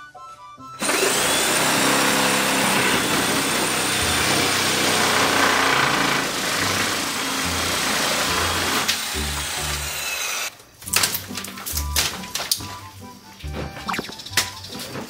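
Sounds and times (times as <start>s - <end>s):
power tool whirring: 0.8s - 10.5s.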